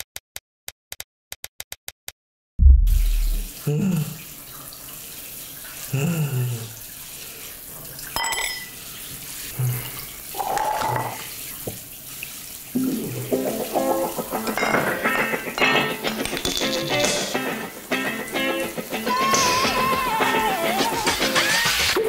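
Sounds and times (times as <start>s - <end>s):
heavy low thud: 2.6s - 3.5s
short low sounds: 2.6s - 4.1s
shower spraying water: 2.9s - 22.0s.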